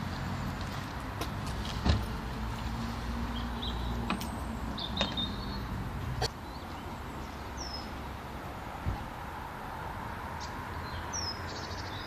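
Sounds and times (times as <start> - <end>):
small birds chirping: 3.3 - 8.1, 10.4 - 12.0.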